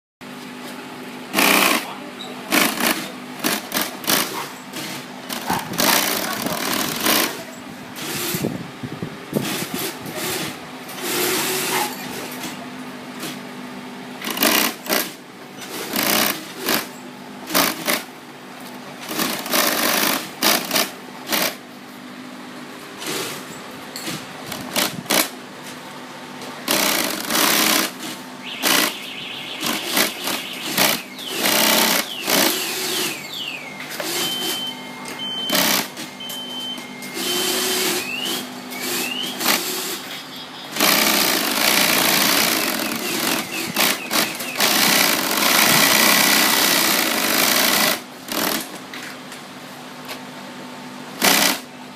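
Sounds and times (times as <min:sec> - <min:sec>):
steady machine hum: 0:00.2 - 0:51.9
sewing machine stitching: 0:01.4 - 0:01.9, 0:02.5 - 0:07.4, 0:09.4 - 0:12.5, 0:14.2 - 0:16.9, 0:17.5 - 0:18.1, 0:19.1 - 0:21.6, 0:26.7 - 0:29.0, 0:29.6 - 0:33.2, 0:35.4 - 0:36.0, 0:40.8 - 0:48.7, 0:51.2 - 0:51.6.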